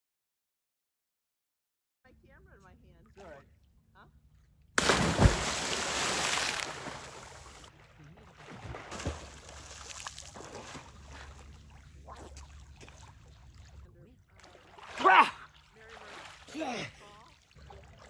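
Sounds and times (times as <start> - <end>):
splash of diving into water: 4.8 - 7.7, 8.4 - 13.2
churning water: 4.8 - 18.0
swimming splashes and sloshing: 4.8 - 18.0.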